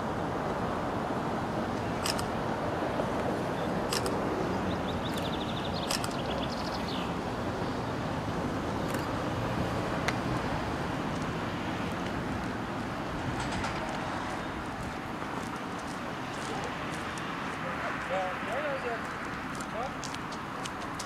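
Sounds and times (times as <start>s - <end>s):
tram rumbling on track: 7.2s - 18.1s.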